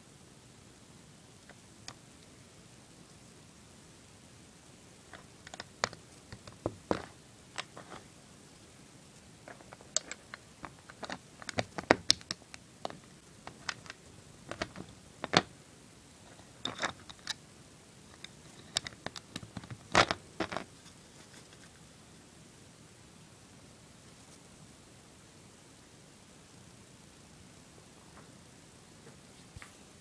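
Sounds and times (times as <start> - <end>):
plastic bricks clicking: 5.1 - 8.0, 9.5 - 15.5.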